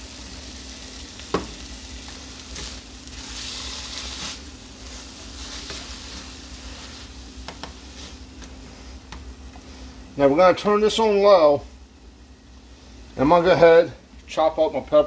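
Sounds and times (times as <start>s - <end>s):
meat sizzling in a skillet: 0.0s - 8.3s.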